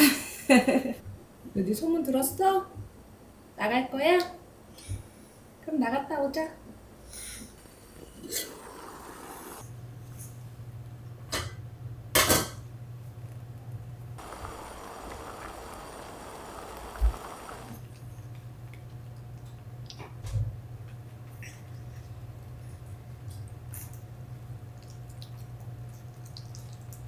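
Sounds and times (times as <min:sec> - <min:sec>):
low steady hum: 0:09.6 - 0:27.0.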